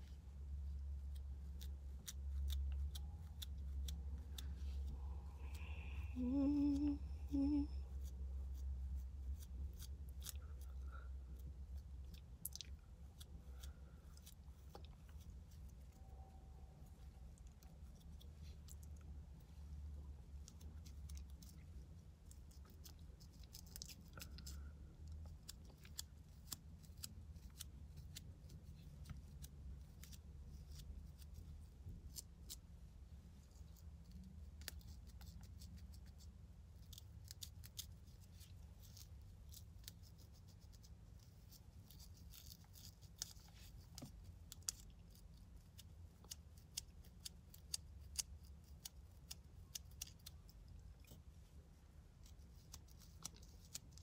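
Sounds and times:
low steady hum: 0:00.0 - 0:54.0
comb scratching through hair: 0:34.7 - 0:51.3.

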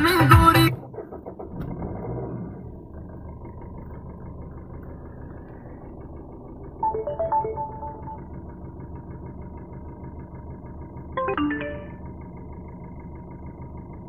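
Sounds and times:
music from car stereo: 0:00.0 - 0:00.8
car engine idling from inside: 0:00.0 - 0:14.0.

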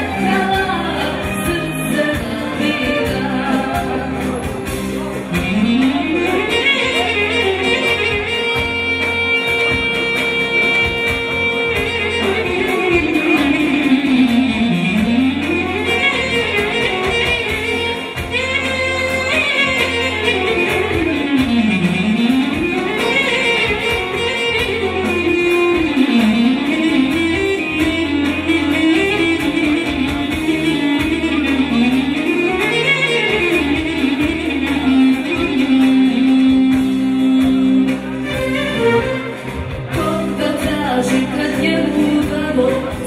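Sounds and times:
instrumental music with swooping melody: 0:00.0 - 0:43.0.

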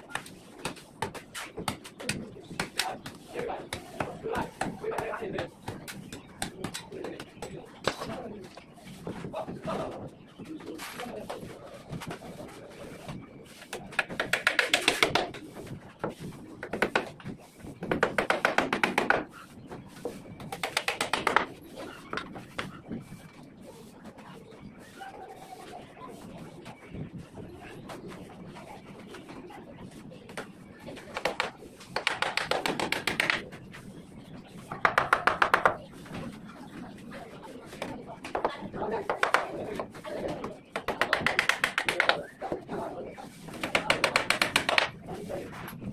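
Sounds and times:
hammer tapping on wooden boards: 0:17.8 - 0:19.3, 0:20.6 - 0:21.5, 0:31.1 - 0:33.5, 0:34.8 - 0:35.8, 0:40.7 - 0:42.2, 0:43.6 - 0:44.9.

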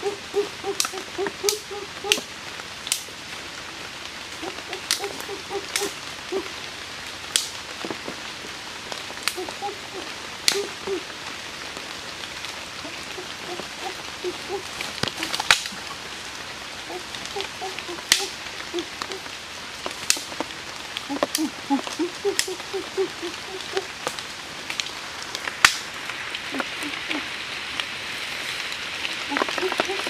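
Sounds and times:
background hiss: 0:00.0 - 0:30.0
twigs snapping: 0:00.7 - 0:02.3, 0:02.9 - 0:03.1, 0:04.4 - 0:06.0, 0:07.3 - 0:08.2, 0:09.2 - 0:09.6, 0:13.5 - 0:15.9, 0:16.9 - 0:19.2, 0:19.8 - 0:20.5.

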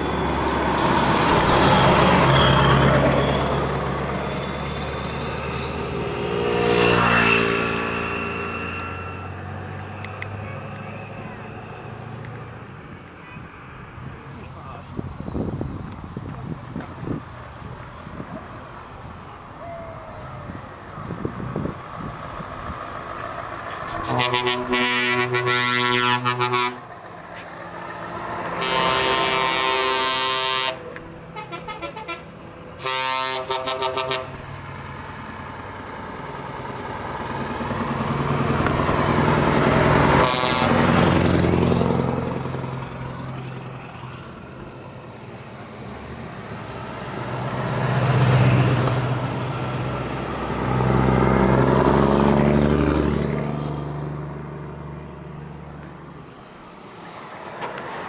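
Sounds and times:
diesel trucks driving past: 0:00.0 - 0:58.0
truck air horns blowing: 0:23.9 - 0:26.9, 0:28.4 - 0:34.4, 0:40.0 - 0:41.2.

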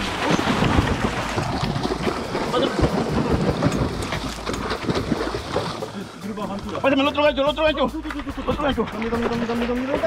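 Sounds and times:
water splashing along boat hull: 0:00.0 - 0:06.8.

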